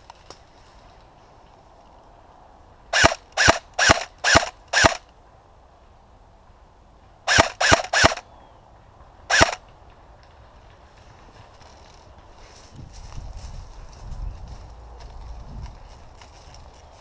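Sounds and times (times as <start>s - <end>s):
airsoft rifle shots: 2.9s - 5.1s, 7.3s - 8.3s, 9.3s - 9.6s.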